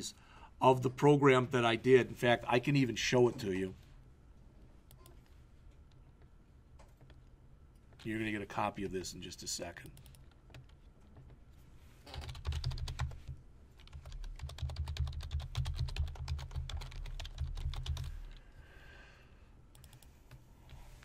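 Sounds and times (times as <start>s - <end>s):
typing on computer keyboard: 12.1s - 18.4s.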